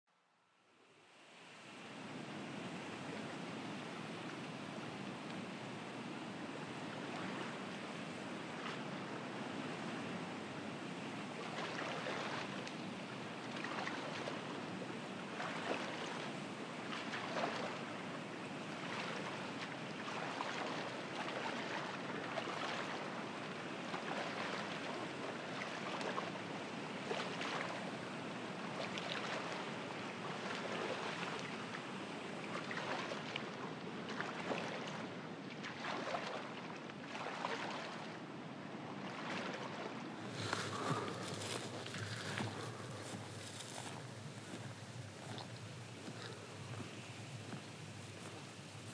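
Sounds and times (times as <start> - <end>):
oars splashing in water: 11.4 - 14.6, 15.3 - 16.3, 16.9 - 17.9, 18.8 - 23.2, 23.9 - 26.3, 27.1 - 27.8, 30.4 - 31.6, 32.5 - 38.1, 39.1 - 48.9
water washing: 40.2 - 48.9.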